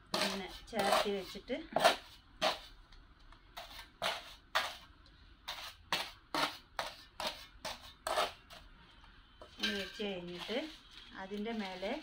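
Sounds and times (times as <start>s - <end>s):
trowel scraping cement: 0.1s - 2.7s, 3.6s - 4.8s, 5.5s - 8.6s, 10.2s - 12.0s.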